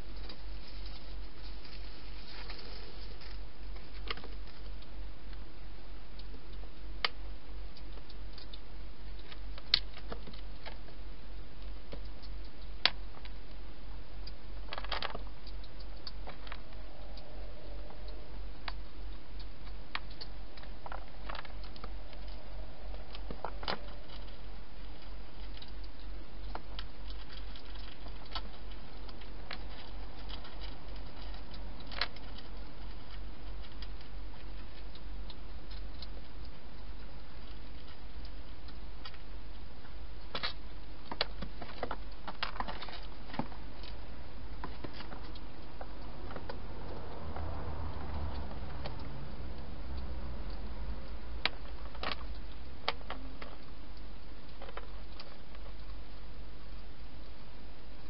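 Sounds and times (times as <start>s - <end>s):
steady low hum: 0.0s - 58.0s
hedgehog crunching food: 19.4s - 56.1s.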